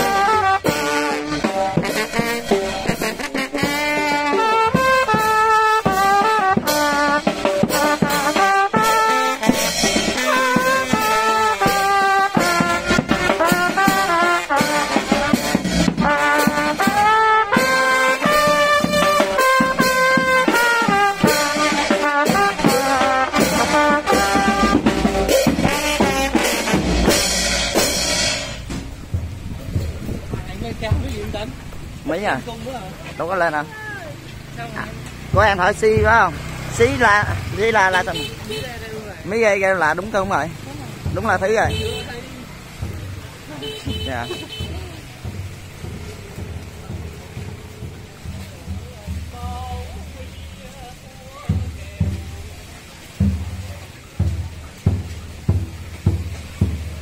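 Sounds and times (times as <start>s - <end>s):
drum and cymbal strikes: 0.0s - 32.3s, 53.1s - 57.0s
brass band playing: 0.0s - 57.0s.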